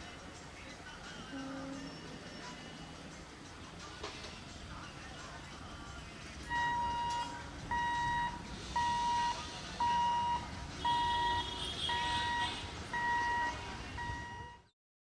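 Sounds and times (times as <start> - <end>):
level crossing buzzer beeping: 6.5 - 14.7.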